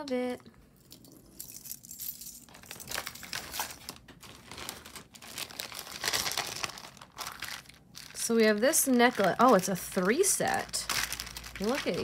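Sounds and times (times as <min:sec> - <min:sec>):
crinkling packaging: 0:02.4 - 0:12.0.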